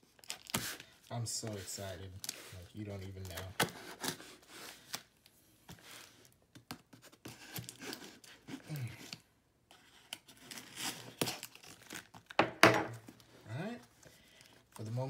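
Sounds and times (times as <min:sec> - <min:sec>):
knife tearing packing tape: 0:00.2 - 0:00.8, 0:10.1 - 0:12.1
scraping and rustling cardboard: 0:01.4 - 0:04.9, 0:06.8 - 0:11.4.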